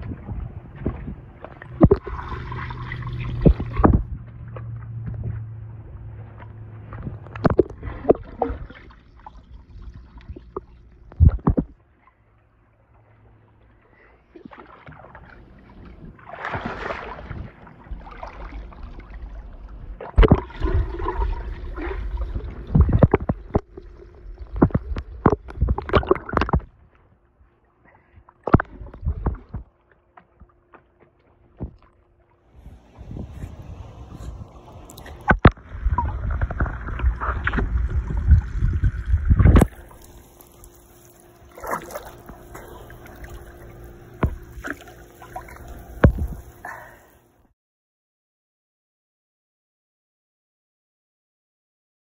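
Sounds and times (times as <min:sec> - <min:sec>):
muffled underwater bubbling: 0:00.0 - 0:04.6, 0:06.2 - 0:11.8, 0:13.9 - 0:26.7, 0:32.5 - 0:47.3
water sloshing and splashing: 0:00.0 - 0:47.4.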